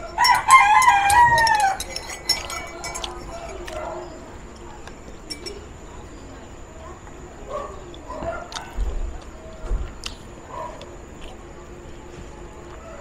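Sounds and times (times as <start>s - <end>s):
rooster crowing: 0.0s - 2.2s
cutlery clinking on a plate: 0.0s - 4.0s, 5.2s - 5.7s.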